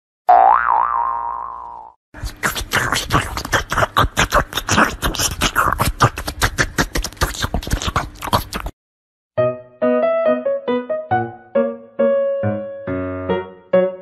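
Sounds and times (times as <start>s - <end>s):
cat licking: 2.2s - 8.7s
piano music: 9.4s - 14.0s.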